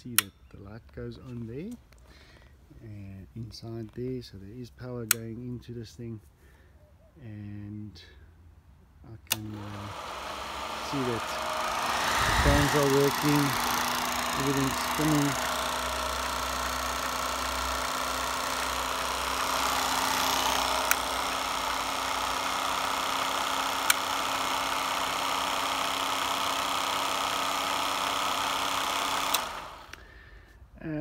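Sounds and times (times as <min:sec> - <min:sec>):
projector control clicks: 0:09.3 - 0:30.0
film projector whirring: 0:09.3 - 0:30.1.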